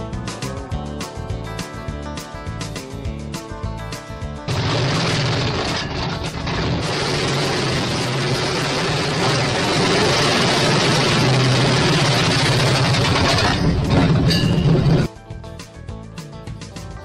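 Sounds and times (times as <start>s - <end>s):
diesel engine running loudly: 4.5s - 15.1s.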